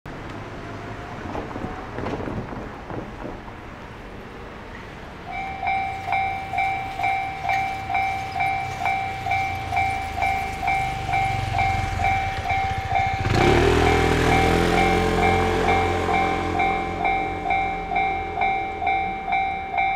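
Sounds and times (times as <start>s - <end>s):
car driving on road: 0.1s - 19.9s
two-tone crossing warning bell: 4.7s - 19.9s
motor scooter passing: 5.3s - 19.0s.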